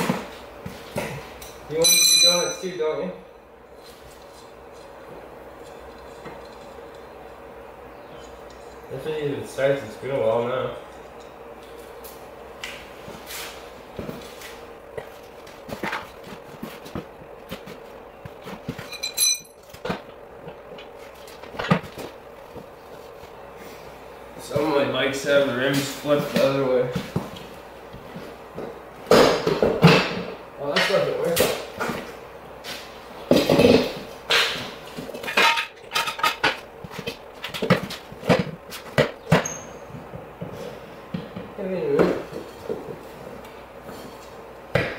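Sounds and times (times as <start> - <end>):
steady low hum: 0.0 - 44.9
brief high-pitched ring: 1.8 - 2.7
metal rim knocking and clinking: 1.8 - 2.8, 18.8 - 19.6
knocks of rubber and metal: 28.6 - 30.4, 33.3 - 40.5.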